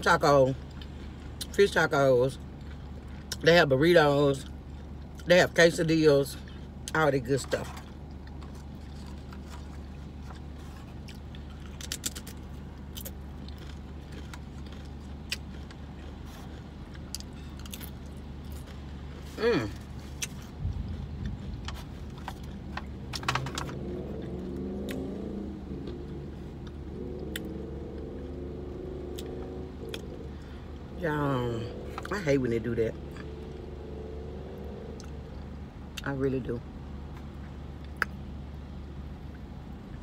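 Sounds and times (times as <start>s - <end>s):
low hum inside a car: 0.0s - 40.0s
eating sounds: 8.0s - 30.6s.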